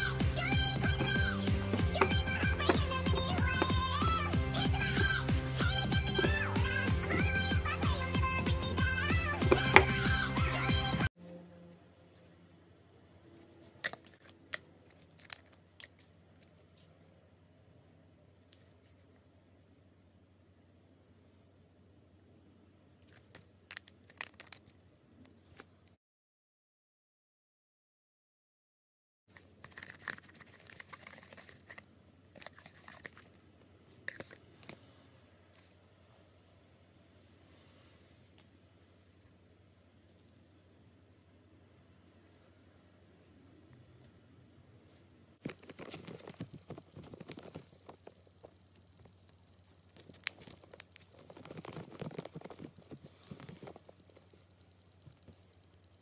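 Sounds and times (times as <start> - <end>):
slime clicking and crackling: 47.0 - 56.0.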